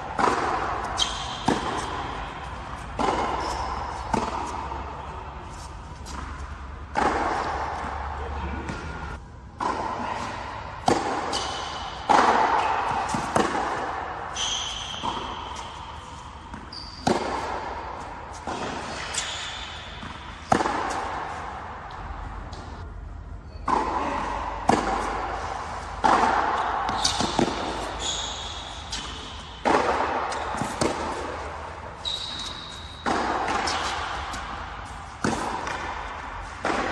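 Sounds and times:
racket striking ball: 0.0 - 22.8, 23.6 - 36.9
tennis ball bouncing: 0.0 - 22.8, 23.5 - 36.9
shoe squeaks on court: 0.8 - 2.2, 3.0 - 4.6, 14.3 - 17.4, 18.9 - 20.1, 26.9 - 30.9, 32.0 - 34.3.

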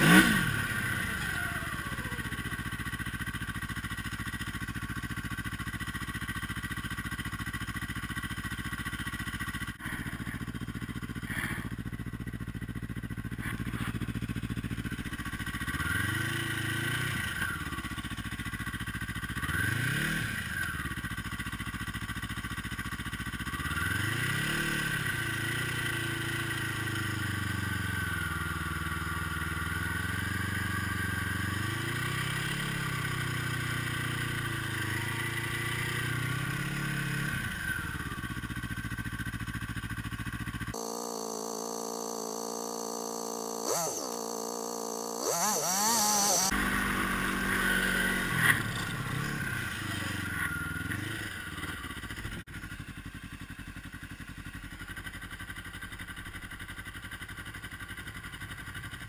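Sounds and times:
snowmobile engine revving: 0.0 - 2.6, 11.2 - 11.7, 40.7 - 52.4.

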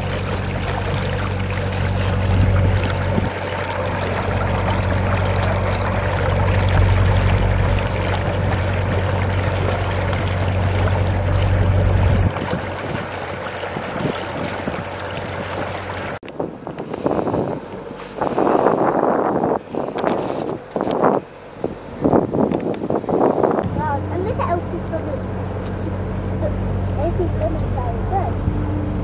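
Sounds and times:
wind noise: 0.0 - 24.3
rushing water: 0.0 - 28.3
boat engine running: 0.0 - 29.0.

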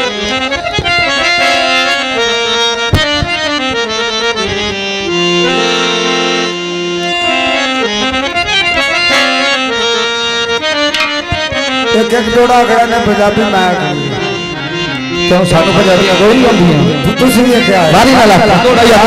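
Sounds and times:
reed instrument melody: 0.0 - 19.0
sharp percussion strikes: 10.9 - 12.8.

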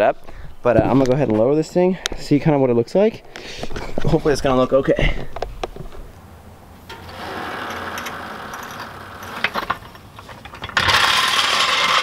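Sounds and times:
jack clicks: 6.9 - 12.0.

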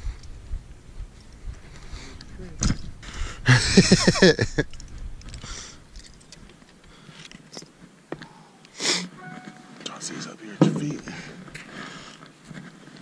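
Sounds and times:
short sliding-pitch sounds: 9.1 - 9.8.

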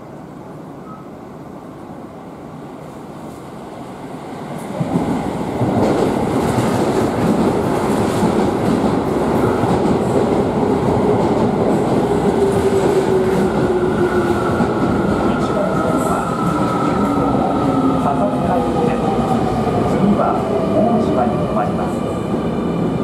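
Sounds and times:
train wheels rumbling on rails: 4.5 - 23.0.

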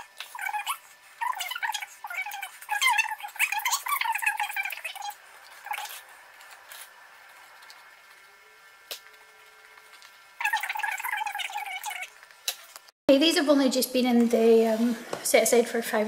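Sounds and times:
spoon squeaking and scraping: 0.0 - 6.9, 10.4 - 12.1.

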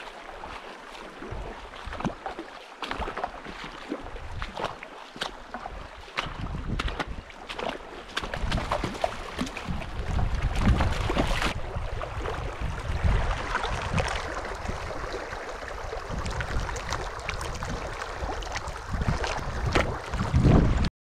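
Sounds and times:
stream splashing over rocks: 0.0 - 20.9
wind rumbling on microphone: 5.6 - 20.9.

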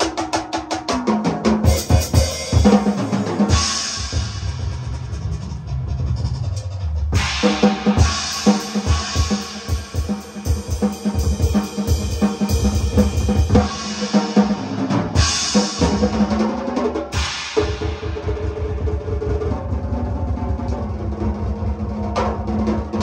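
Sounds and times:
kick and snare drums: 0.0 - 23.0
cymbal crashes: 1.8 - 16.2, 17.1 - 19.0.

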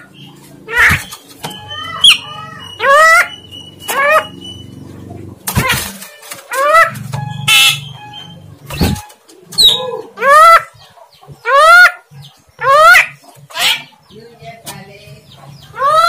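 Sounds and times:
harsh scratchy bird noise: 0.0 - 9.8
bird whistled calls: 0.9 - 4.8, 7.3 - 10.1.

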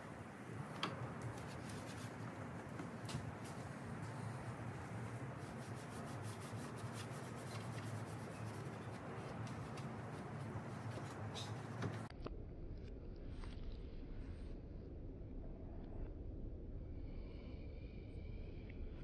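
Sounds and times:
cloth wiping plastic: 0.6 - 12.1.

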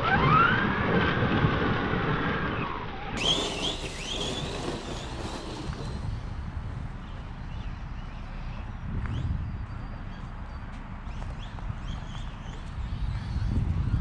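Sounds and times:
electric motor whining: 3.1 - 6.1
short high rising chirps: 3.2 - 6.0.

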